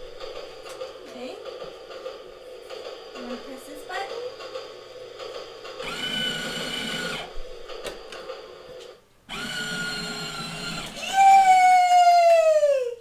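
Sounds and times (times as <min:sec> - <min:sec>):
wheels rumbling on plastic track: 0:00.0 - 0:09.0
toy train motor whirring: 0:01.5 - 0:11.4.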